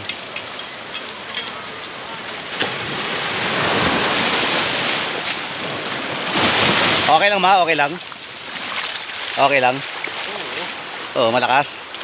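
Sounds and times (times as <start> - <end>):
surf breaking on shore: 1.5 - 12.0.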